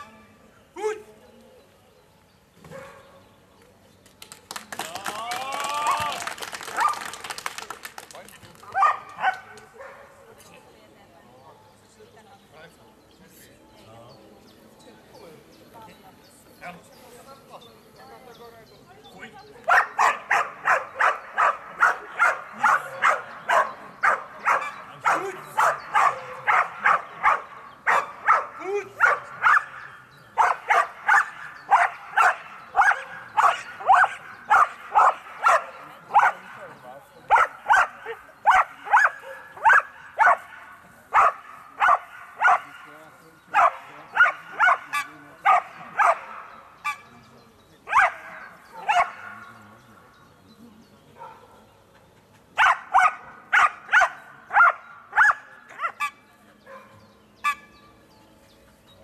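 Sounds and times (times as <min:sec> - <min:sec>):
dog barking: 0:02.7 - 0:03.1, 0:08.7 - 0:10.1, 0:19.7 - 0:29.8, 0:30.4 - 0:36.5, 0:37.3 - 0:42.7, 0:43.5 - 0:47.0, 0:47.9 - 0:49.4, 0:51.2 - 0:51.6, 0:52.6 - 0:57.6.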